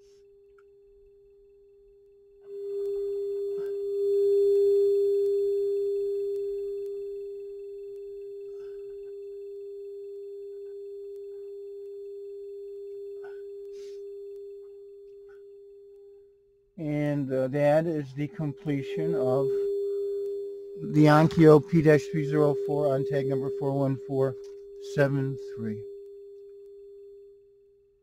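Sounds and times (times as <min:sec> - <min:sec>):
sine-wave test tone: 0:00.0 - 0:28.0.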